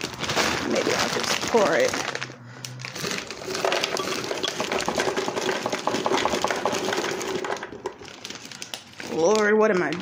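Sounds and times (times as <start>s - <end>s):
fruit pieces clinking onto ice: 3.1s - 8.6s.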